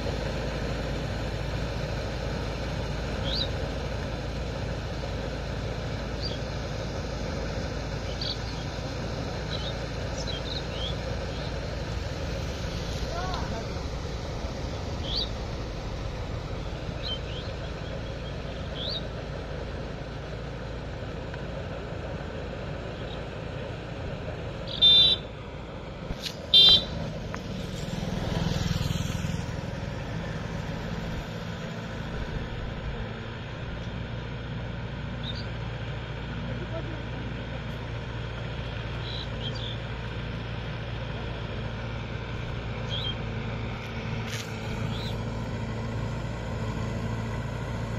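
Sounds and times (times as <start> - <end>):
distant tractor diesel engine: 0.0 - 47.9
high bird chirps: 8.0 - 8.7, 15.0 - 15.4, 16.9 - 19.1, 42.8 - 43.2
loud high-pitched beeps: 24.7 - 25.2.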